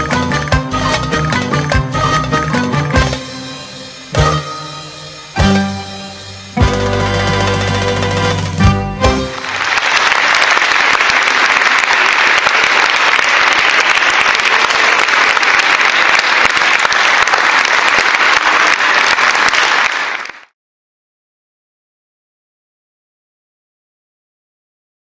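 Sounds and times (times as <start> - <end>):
audience applauding: 9.0 - 20.5.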